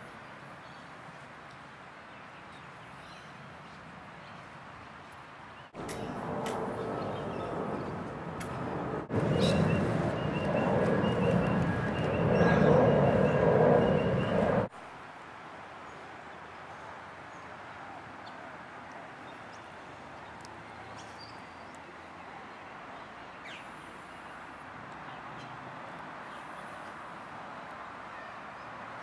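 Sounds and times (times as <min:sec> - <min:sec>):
jet airliner passing overhead: 0:05.8 - 0:14.7.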